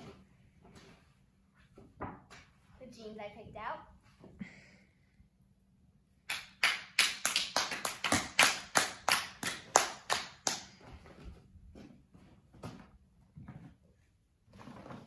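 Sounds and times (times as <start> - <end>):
hands clapping: 6.3 - 10.9.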